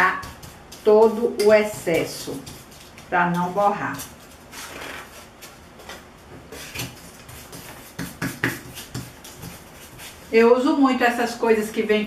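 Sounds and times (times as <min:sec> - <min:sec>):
brush scratching on plastic tray: 0:00.0 - 0:05.7, 0:06.5 - 0:11.2
light brush taps: 0:00.2 - 0:04.1.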